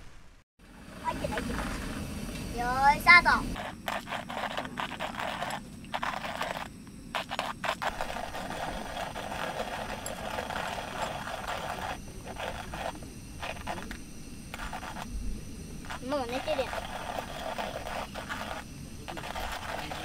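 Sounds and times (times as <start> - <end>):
scratchy rustling and scraping: 3.6 - 15.1, 15.8 - 20.0.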